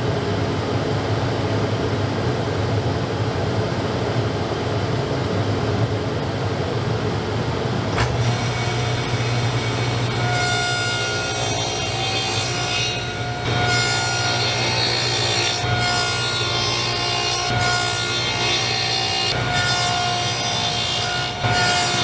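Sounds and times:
table saw cutting wood: 8.0s - 22.0s.

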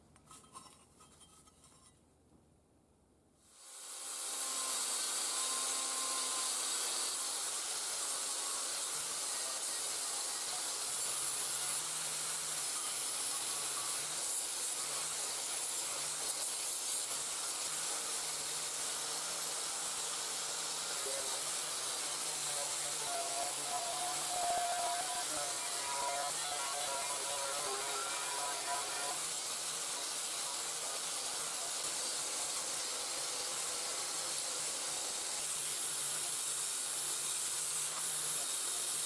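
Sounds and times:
angle grinder wire brush scouring: 20.9s - 30.1s.

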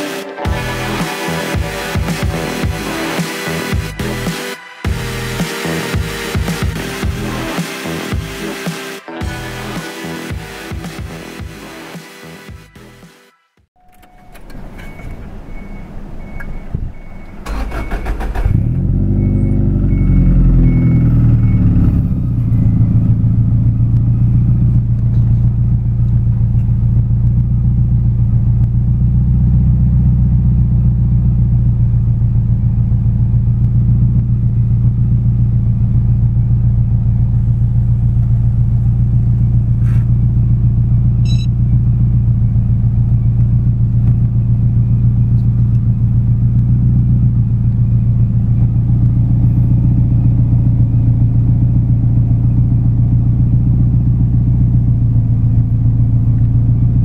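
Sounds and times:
engine cranking on starter: 13.8s - 20.8s
car engine idling: 13.8s - 57.0s.

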